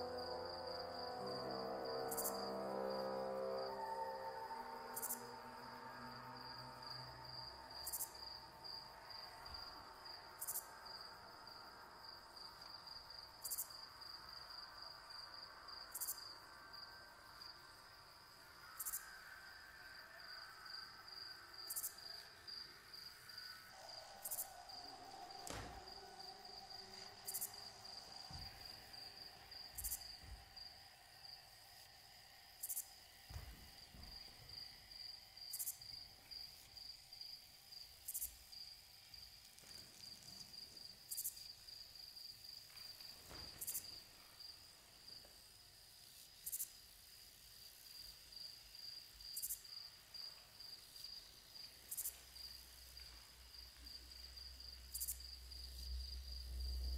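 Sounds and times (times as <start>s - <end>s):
higher short insect call: 0.0s - 42.0s
faint sustained tones: 0.0s - 44.8s, 51.3s - 56.9s
crickets trilling: 0.0s - 56.9s
single thud: 25.4s - 25.8s.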